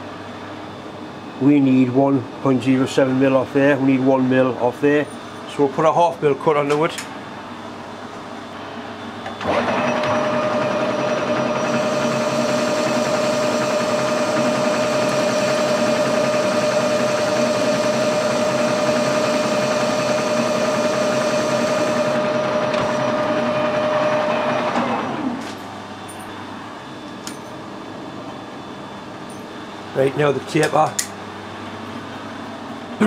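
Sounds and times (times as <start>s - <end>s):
metal lathe whining: 9.3s - 25.5s
lathe spinning down: 9.4s - 25.4s.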